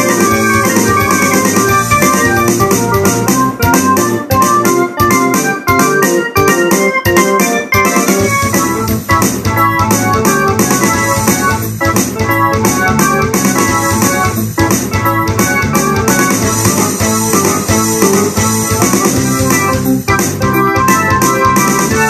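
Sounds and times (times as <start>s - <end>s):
synthesizer chords and melody: 0.0s - 22.0s.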